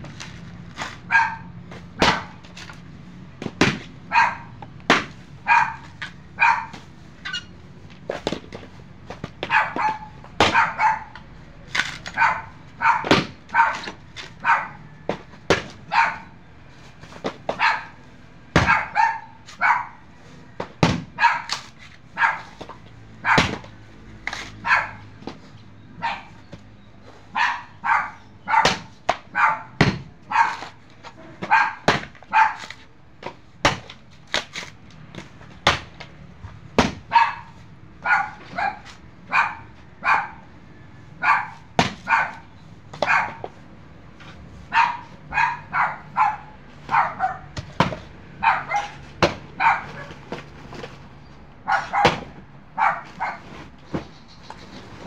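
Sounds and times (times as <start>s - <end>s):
dog barking: 1.1s - 1.5s, 4.1s - 4.6s, 5.4s - 6.8s, 9.4s - 11.2s, 12.1s - 14.9s, 15.9s - 16.4s, 17.5s - 18.0s, 18.6s - 20.1s, 21.2s - 21.6s, 22.2s - 22.6s, 23.2s - 23.6s, 24.6s - 25.1s, 26.0s - 26.4s, 27.3s - 32.8s, 37.1s - 40.5s, 41.2s - 43.5s, 44.7s - 47.6s, 48.4s - 49.0s, 49.6s - 50.2s, 51.6s - 53.5s.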